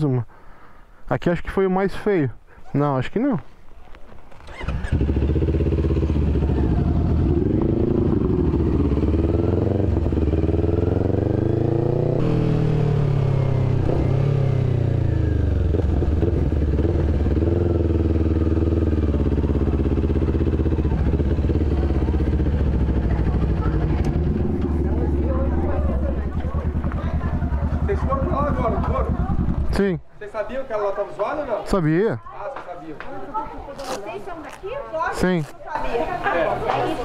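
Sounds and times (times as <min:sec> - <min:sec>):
motorcycle engine revving: 0:04.4 - 0:29.9.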